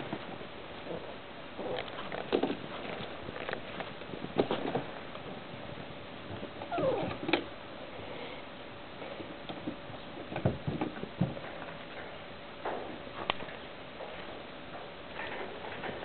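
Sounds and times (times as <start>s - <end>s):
puppies whining and squeaking: 6.6s - 7.3s
puppy crying: 6.7s - 7.2s.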